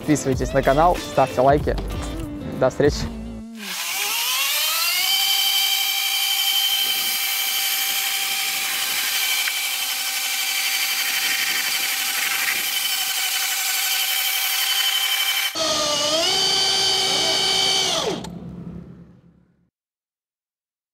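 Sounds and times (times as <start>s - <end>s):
electric motorcycle whine: 3.1s - 19.7s.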